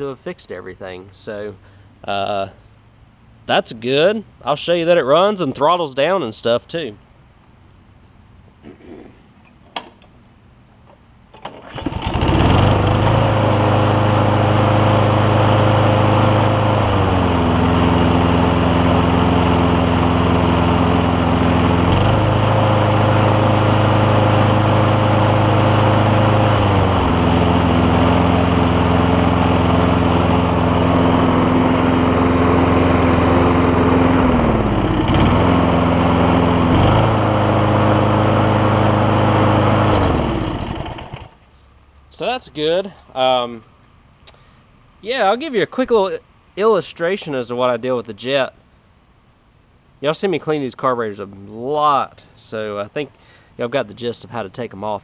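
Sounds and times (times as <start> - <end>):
lawn mower engine running: 11.3 - 41.5.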